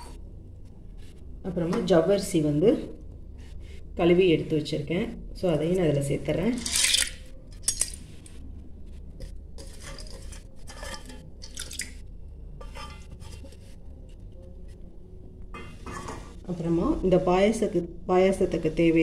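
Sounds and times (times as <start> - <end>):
scraping in a steel bowl: 9.2 - 14.8.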